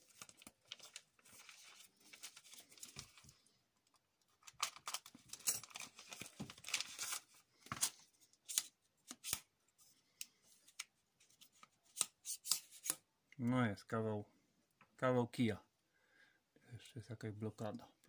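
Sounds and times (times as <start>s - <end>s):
packaging tearing and crinkling: 4.4s - 9.4s.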